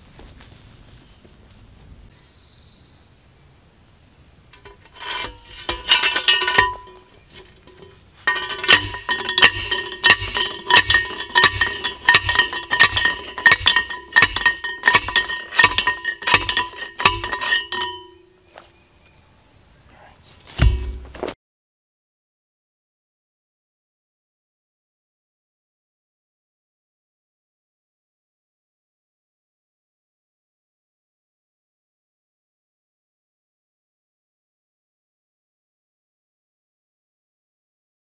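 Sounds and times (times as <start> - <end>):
metal clangs of post driver: 4.6 - 18.3, 20.6 - 21.3.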